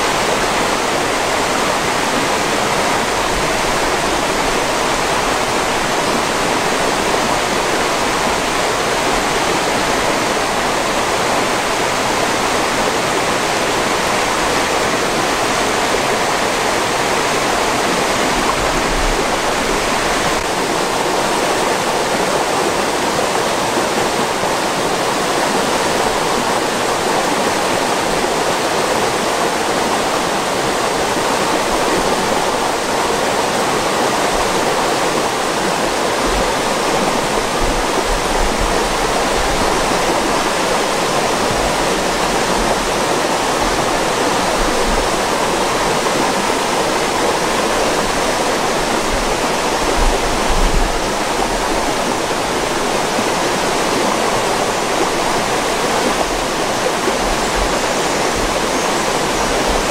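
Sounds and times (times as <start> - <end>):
water rushing over rocks: 0.0 - 59.9.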